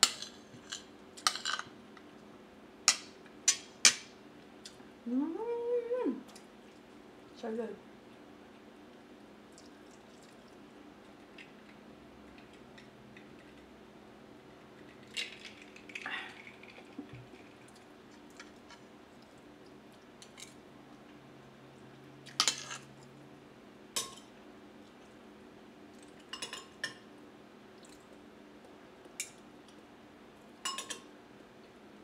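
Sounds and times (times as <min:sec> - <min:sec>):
cutlery clinking on a plate: 0:30.6 - 0:31.1.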